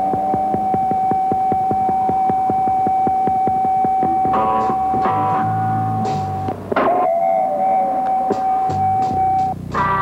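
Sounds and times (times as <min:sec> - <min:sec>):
synthesizer note clusters: 0:00.0 - 0:09.6
low sustained bass notes: 0:03.7 - 0:06.8.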